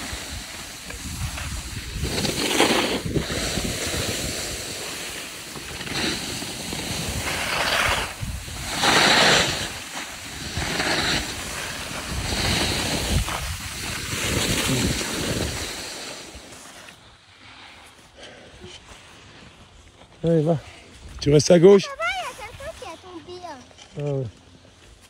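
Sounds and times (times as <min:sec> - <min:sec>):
wind buffeting microphone: 0:00.0 - 0:04.6, 0:06.8 - 0:15.8
skis scraping over snow: 0:00.0 - 0:25.0.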